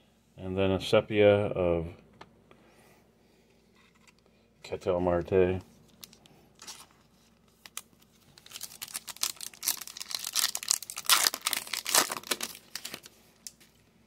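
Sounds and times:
card pack wrapper crinkling and tearing: 5.9s - 13.6s.

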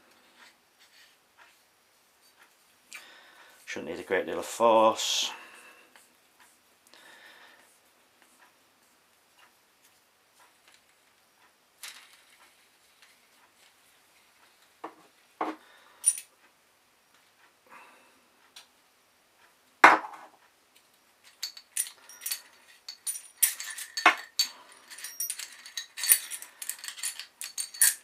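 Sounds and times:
metal parts clinking and rattling: 16.0s - 16.3s, 21.2s - 28.0s.

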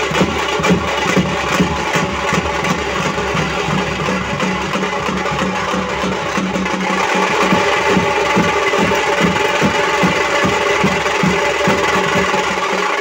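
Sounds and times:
snare drums: 0.0s - 13.0s.

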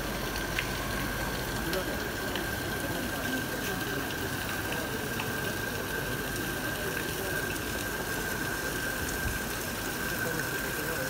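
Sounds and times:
fountain water splashing: 0.0s - 11.0s
faint mechanical ticks: 0.3s - 2.6s.

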